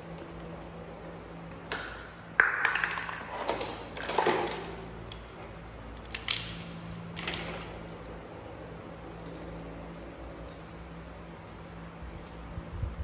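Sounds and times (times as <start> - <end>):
plastic toys clattering together: 1.7 - 4.9.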